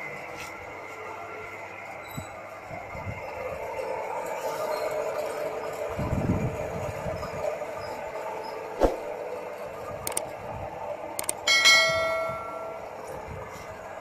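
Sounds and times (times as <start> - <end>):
motor-generator humming: 0.0 - 14.0
clicks: 11.2 - 11.4
bell chime: 11.5 - 12.9.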